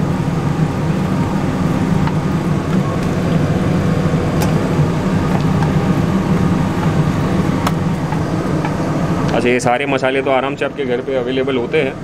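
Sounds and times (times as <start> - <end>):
kitchen machinery drone: 0.0 - 12.0.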